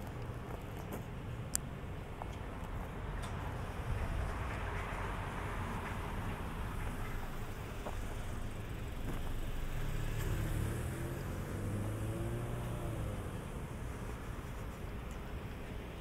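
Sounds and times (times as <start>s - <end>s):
street rumble: 0.0s - 16.0s
car passing: 3.4s - 14.8s.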